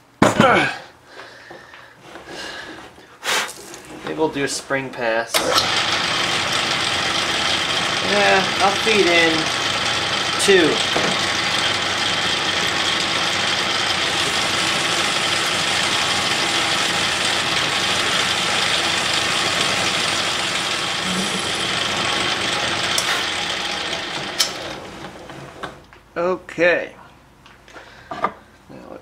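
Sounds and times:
metal lathe running: 5.4 - 25.8.

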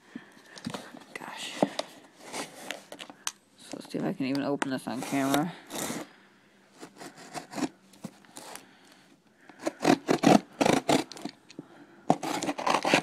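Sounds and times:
box cutter slicing cardboard tape: 4.9 - 6.1, 6.8 - 7.7, 9.6 - 11.4, 12.1 - 13.0.

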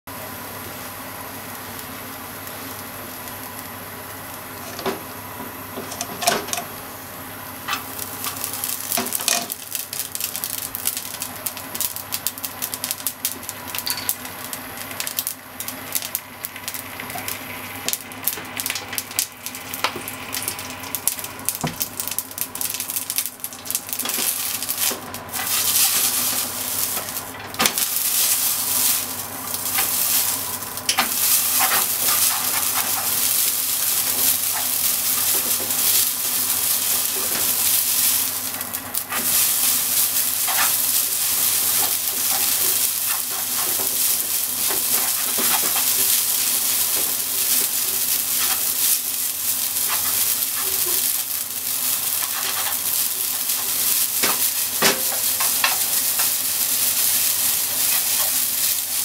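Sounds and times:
spaghetti sizzling in a frying pan: 0.1 - 59.0
tongs tossing noodles: 23.0 - 59.0.

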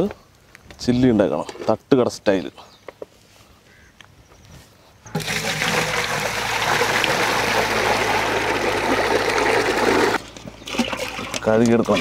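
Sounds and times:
water pouring into metal pot: 5.1 - 12.0.

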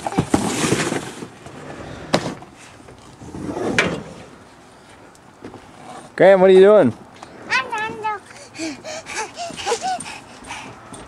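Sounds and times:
sliding door rolling on track: 3.2 - 4.4.

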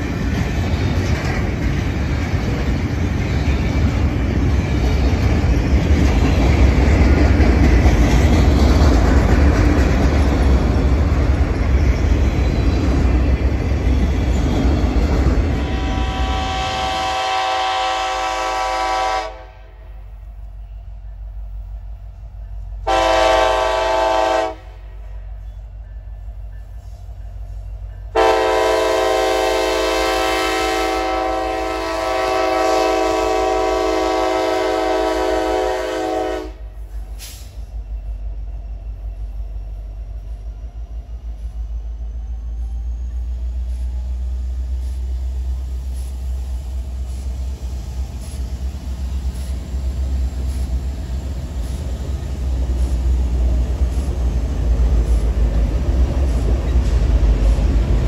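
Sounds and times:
wheels clicking over rail joints: 0.0 - 15.6
freight train rumbling past: 0.0 - 58.0
train air horn: 15.5 - 19.9, 22.8 - 24.9, 28.1 - 37.4.

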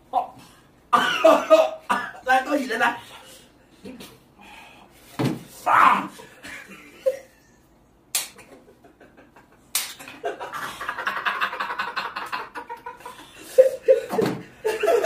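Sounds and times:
men laughing hard: 6.2 - 7.5, 8.4 - 15.0.

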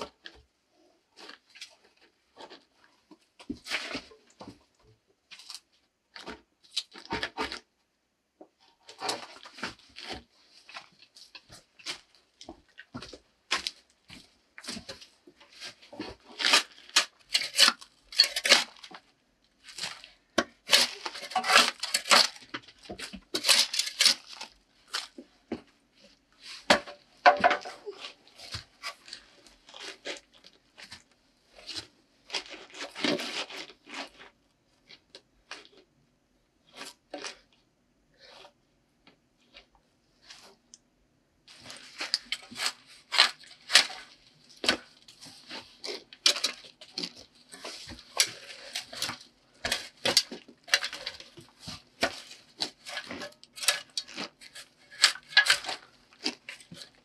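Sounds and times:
tool scraping over dirt floor: 13.0 - 19.0, 19.6 - 24.5, 41.5 - 57.0
wooden boards rustling and knocking: 26.6 - 28.0.

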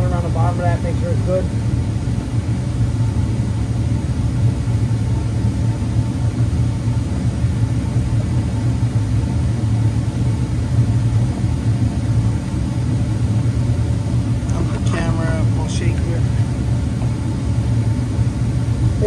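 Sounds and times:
car engine idling: 5.6 - 19.0.

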